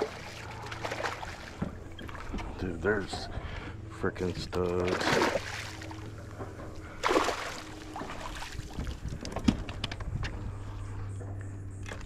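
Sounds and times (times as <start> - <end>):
fish splashing in water: 0.0 - 2.3, 4.8 - 6.2, 6.9 - 9.0.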